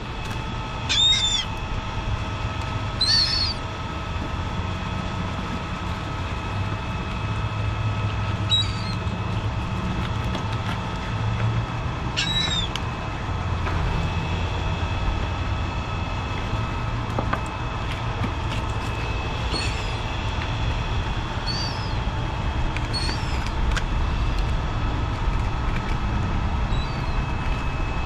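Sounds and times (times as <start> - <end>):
high bird calls: 0.9 - 1.5, 3.0 - 3.6, 8.5 - 9.0, 12.2 - 12.7, 19.5 - 20.0, 21.4 - 22.0, 22.9 - 23.5, 26.7 - 27.2.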